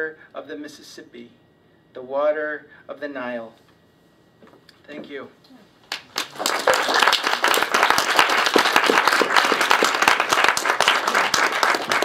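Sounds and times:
audience applauding: 5.9s - 12.0s.

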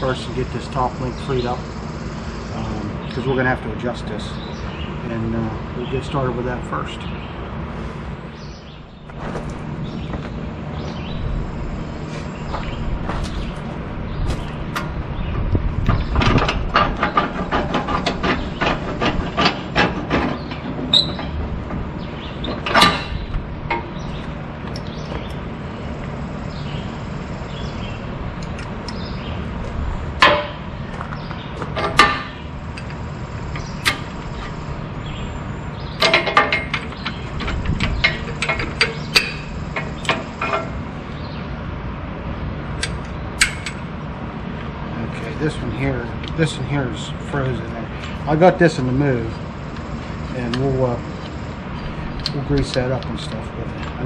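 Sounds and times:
steady low hum: 0.0s - 54.0s
metal clanking and knocking: 12.5s - 25.3s, 28.4s - 35.2s, 35.9s - 40.9s, 42.8s - 43.9s
metal pins rattling: 12.7s - 25.4s, 27.6s - 40.9s, 42.7s - 43.9s.

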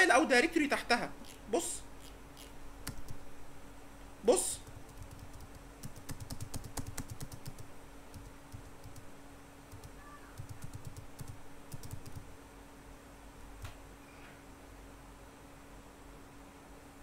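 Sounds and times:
faint steady hum: 0.0s - 17.0s
computer keyboard clicking: 2.8s - 3.2s, 4.6s - 9.1s, 9.7s - 12.3s.

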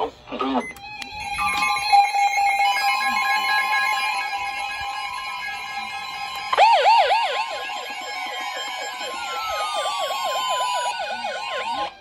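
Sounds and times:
steady alert tone: 0.6s - 11.9s
fast electronic warbling siren: 0.6s - 12.0s
tone gliding down in pitch: 0.6s - 12.0s.

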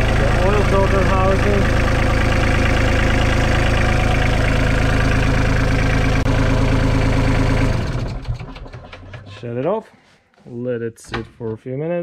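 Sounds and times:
diesel engine idling: 0.0s - 9.2s.

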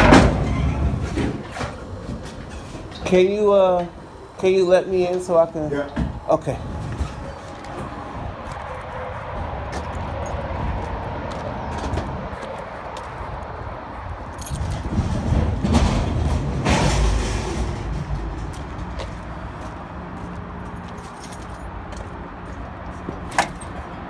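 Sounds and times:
vehicle engine: 0.0s - 24.0s
clicks and jingles from walking: 20.6s - 23.9s.

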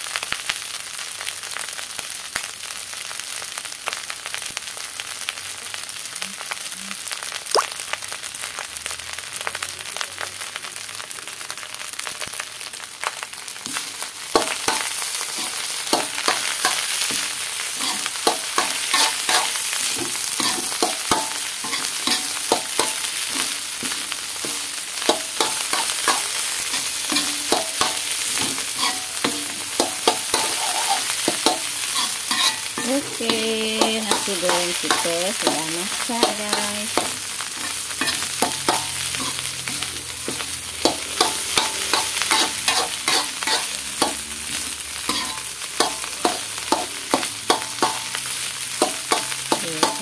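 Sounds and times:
rice sizzling in a wok: 0.0s - 50.0s
metal spoon scraping a wok: 14.4s - 50.0s.

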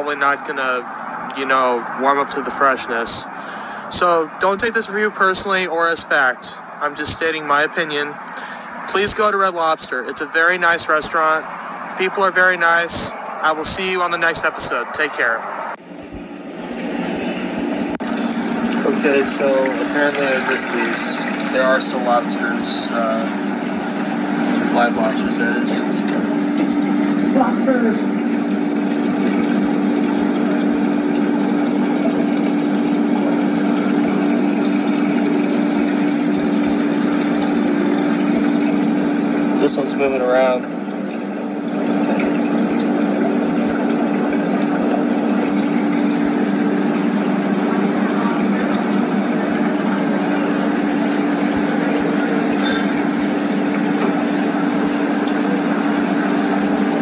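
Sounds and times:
circulating water rushing: 0.0s - 57.0s
water pump humming: 0.0s - 57.0s
hiss of moving water: 3.3s - 3.9s.

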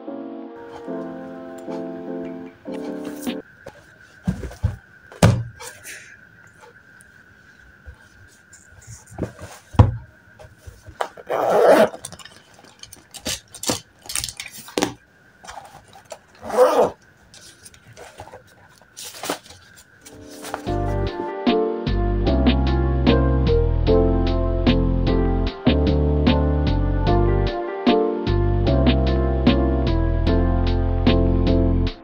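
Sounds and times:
faint high whine: 0.6s - 21.3s
books thumping on desk: 3.1s - 5.8s, 9.1s - 11.2s
clicks and rustles: 10.4s - 16.4s, 17.3s - 20.8s
pencil case zipper rasping: 11.1s - 12.2s, 16.4s - 17.0s.

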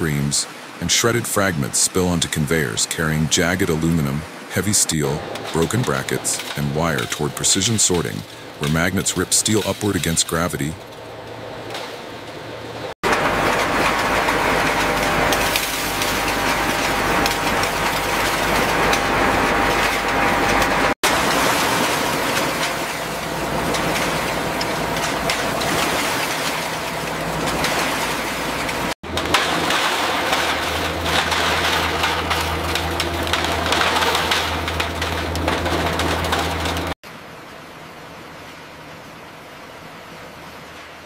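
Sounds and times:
deep steady machine hum: 1.4s - 37.0s
metal scrap grinding and rattling: 21.9s - 37.0s.

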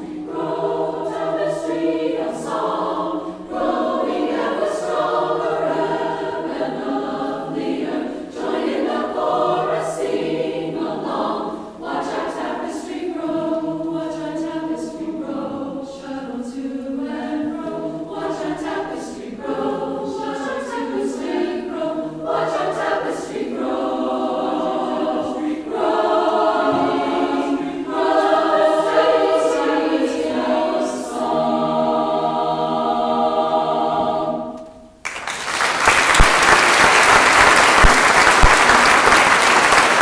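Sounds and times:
women's choir singing in harmony: 0.0s - 35.0s
audience applause: 35.0s - 40.0s.

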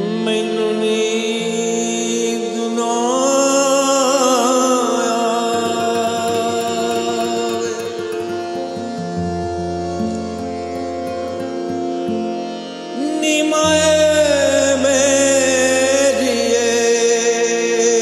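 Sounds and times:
man singing: 0.0s - 8.8s, 12.9s - 18.0s
guitar: 1.2s - 18.0s.

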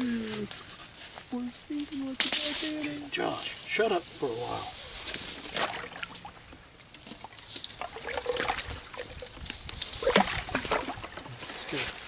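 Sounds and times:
shallow water trickling and splashing: 0.0s - 12.0s.

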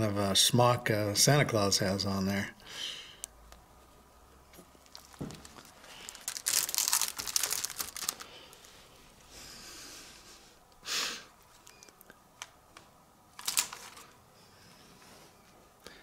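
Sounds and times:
plastic bag crinkling: 4.6s - 8.9s, 13.4s - 14.2s.

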